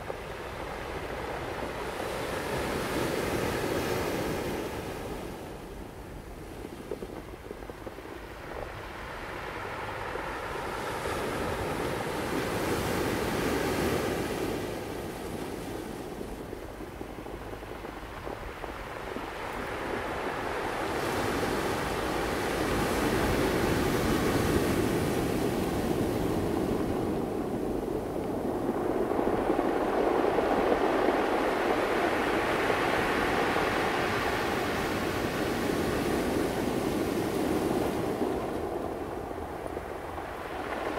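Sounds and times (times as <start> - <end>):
ocean waves breaking: 8.6 - 40.9.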